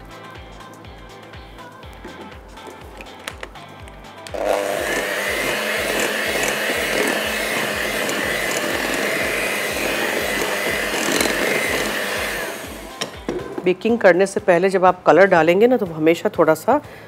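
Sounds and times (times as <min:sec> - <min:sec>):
electric hand mixer whining: 0:04.3 - 0:13.6.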